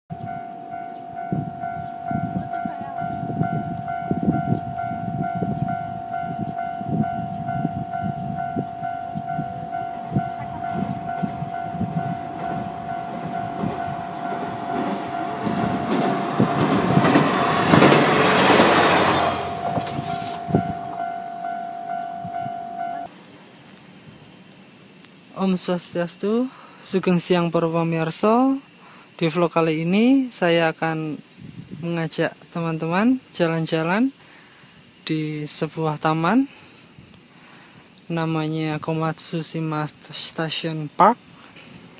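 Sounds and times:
high ringing tone: 0.1s - 17.0s, 18.9s - 39.1s
train wheels clacking on bridge: 13.3s - 20.7s.

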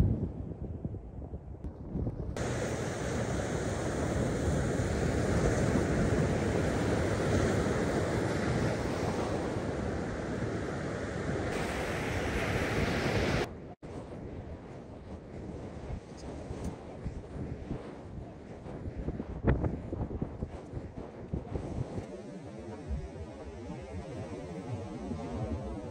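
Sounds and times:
wind buffeting microphone: 0.0s - 25.9s
ocean surf breaking on beach: 2.4s - 13.5s.

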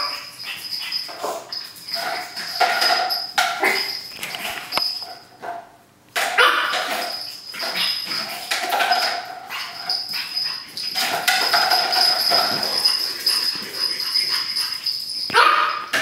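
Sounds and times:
puppy whining and yipping: 6.4s - 16.0s.

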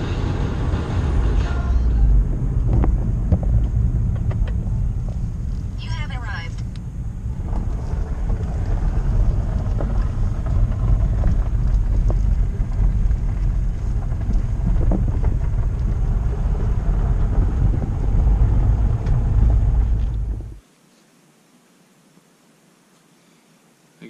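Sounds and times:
road rumble inside car: 0.0s - 20.6s
wind buffeting: 2.0s - 20.6s.

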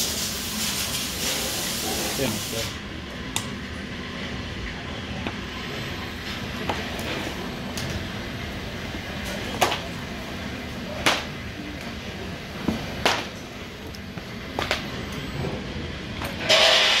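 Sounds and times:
loud hiss: 0.0s - 2.8s, 16.5s - 17.0s.

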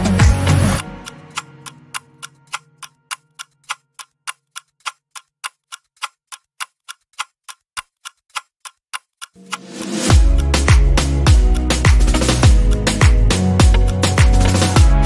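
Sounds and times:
music: 0.0s - 2.9s, 9.4s - 15.0s
clock ticking: 0.0s - 15.0s.

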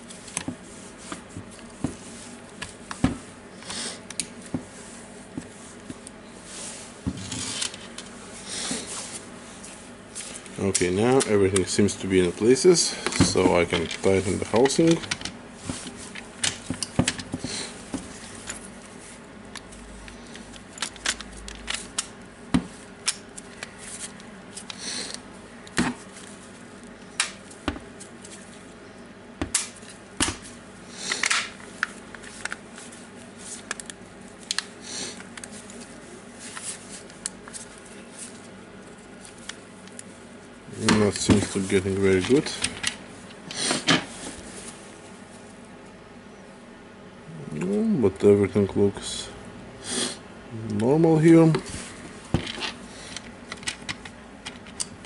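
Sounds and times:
rustles of tool turned over: 4.4s - 11.7s.

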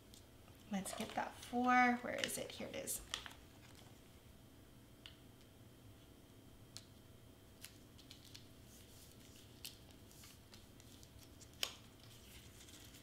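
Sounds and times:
small clicks and light crinkling: 7.6s - 8.5s.

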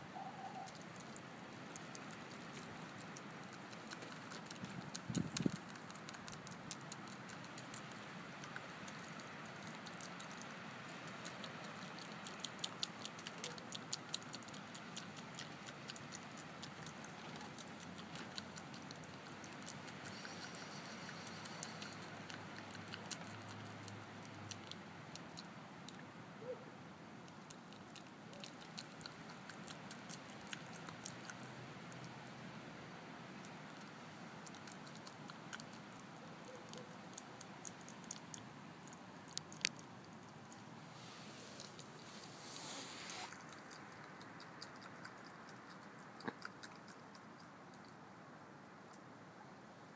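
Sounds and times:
animal chewing wet smacking: 0.2s - 26.0s, 27.2s - 32.5s, 33.3s - 48.1s.

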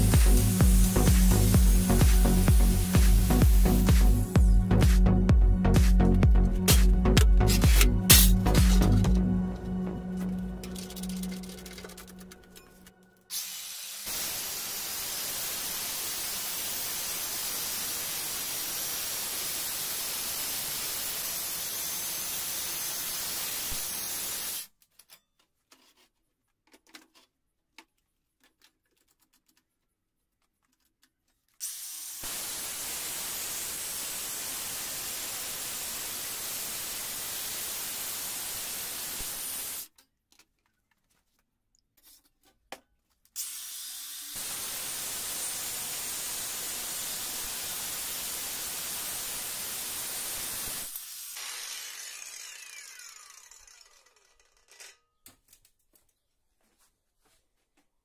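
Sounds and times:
angle grinder cutting sheet steel: 0.0s - 4.1s, 6.7s - 9.2s, 10.2s - 24.7s, 31.6s - 39.9s, 43.4s - 55.1s.

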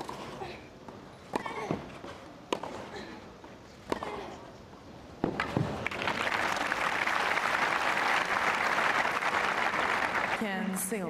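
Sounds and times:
crowd applauding: 5.7s - 10.6s.

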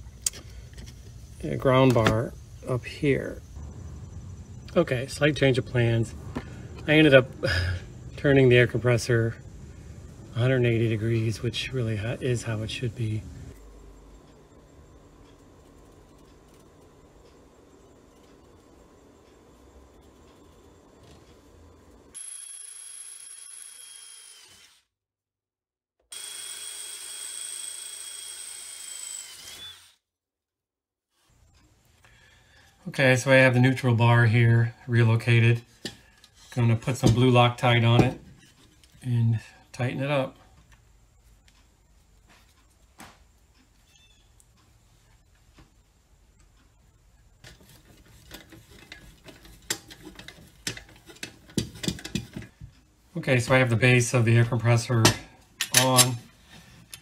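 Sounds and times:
power drill drilling metal: 22.2s - 24.9s, 26.1s - 30.0s.

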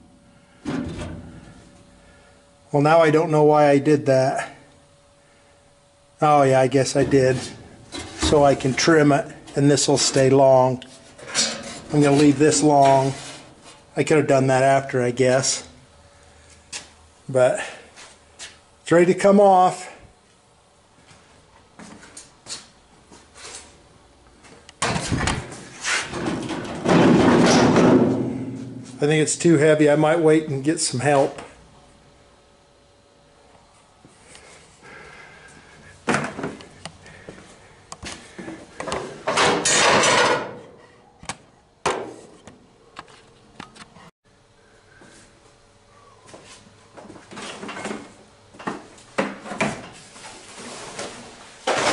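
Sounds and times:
rustling scrape: 10.9s - 13.9s, 25.5s - 26.4s, 50.0s - 51.6s
sheet metal scraping rattle: 11.2s - 13.5s.

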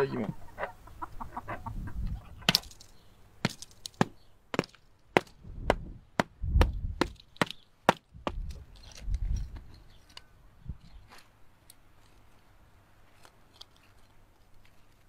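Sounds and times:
hammer knocking on salt crust: 3.4s - 8.4s.

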